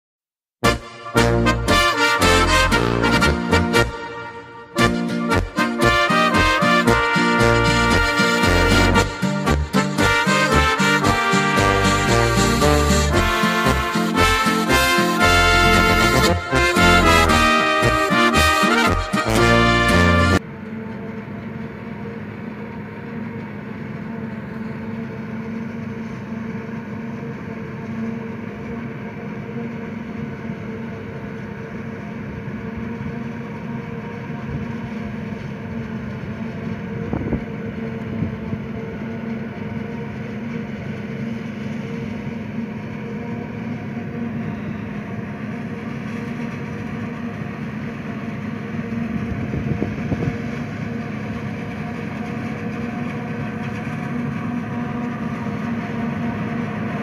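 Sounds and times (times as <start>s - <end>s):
forage harvester drone: 0.6s - 57.0s.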